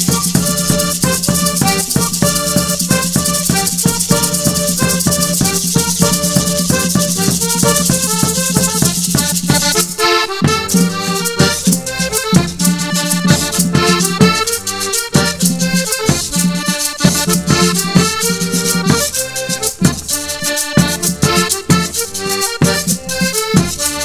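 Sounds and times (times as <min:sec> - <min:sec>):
button accordion: 0:00.0 - 0:24.0
percussion beat: 0:00.0 - 0:24.0.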